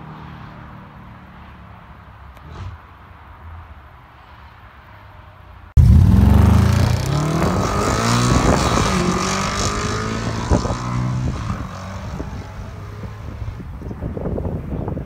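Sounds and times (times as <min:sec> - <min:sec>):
exhaust cracks: 0:05.8 - 0:09.3
car engine accelerating past: 0:05.8 - 0:13.2.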